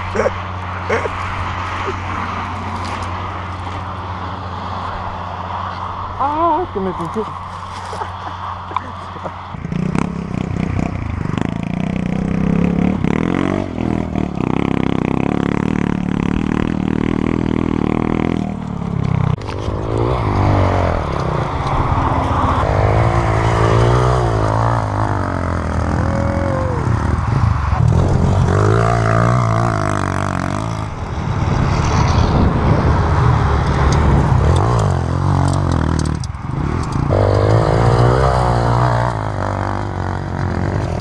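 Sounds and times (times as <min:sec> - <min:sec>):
dirt bike engine revving: 0:08.3 - 0:31.0, 0:32.3 - 0:41.0.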